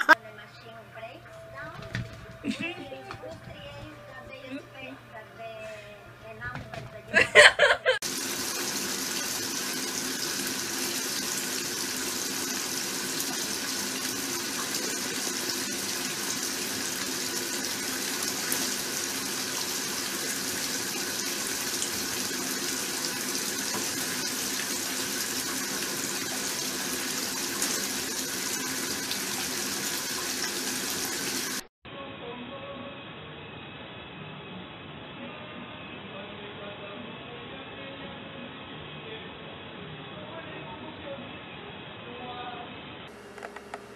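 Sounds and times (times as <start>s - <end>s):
water running: 1.4s - 5.0s, 6.2s - 31.7s.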